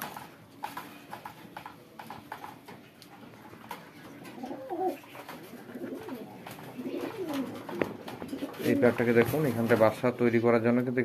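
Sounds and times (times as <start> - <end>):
pigeons cooing: 4.0 - 9.4.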